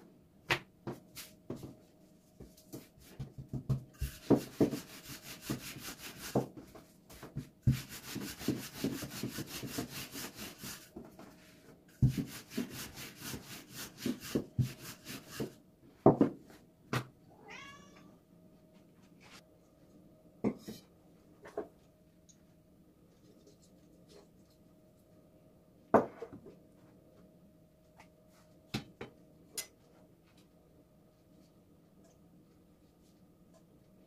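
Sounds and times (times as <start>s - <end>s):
rolling pin rubbing on dough: 2.7s - 11.0s, 12.0s - 15.6s.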